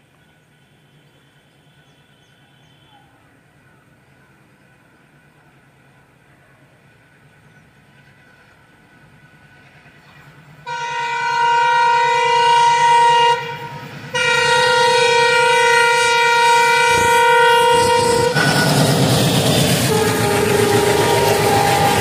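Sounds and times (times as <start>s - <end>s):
diesel locomotive engine throb: 3.4s - 22.0s
locomotive horn blasts: 10.6s - 22.0s.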